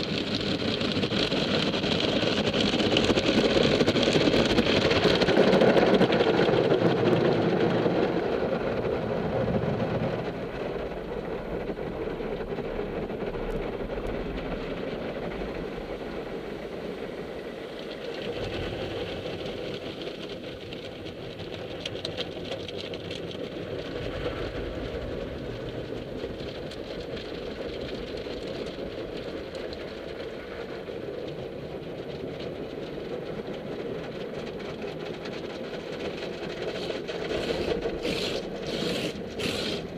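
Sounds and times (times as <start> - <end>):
car wash machinery running: 0.0 - 39.9
water spray beating on car: 36.5 - 39.9.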